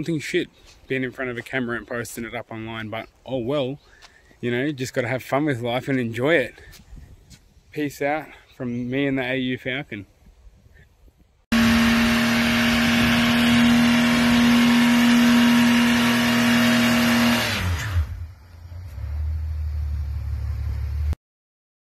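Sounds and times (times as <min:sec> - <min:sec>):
car engine revving: 0:11.5 - 0:21.2
wheels spinning: 0:11.6 - 0:21.2.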